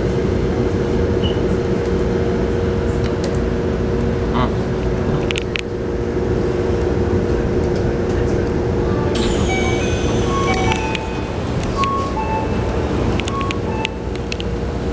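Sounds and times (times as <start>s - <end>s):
train electrical hum: 0.0s - 14.9s
air hiss: 9.2s - 11.1s
short beeping tones: 9.2s - 14.2s.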